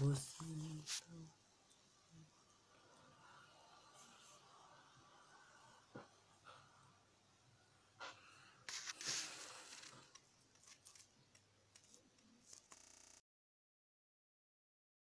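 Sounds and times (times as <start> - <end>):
crackly rustle: 8.7 - 13.0.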